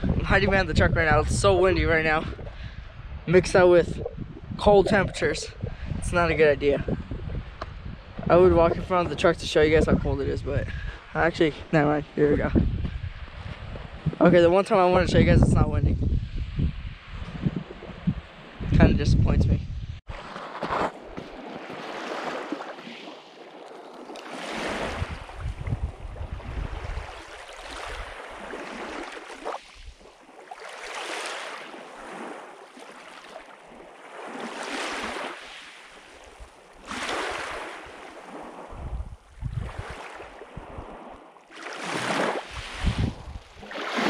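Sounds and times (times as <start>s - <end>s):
wind rumbling on microphone: 0.0s - 20.2s, 24.6s - 30.2s, 36.2s - 44.0s
lake waves on pebble beach: 20.1s - 44.0s.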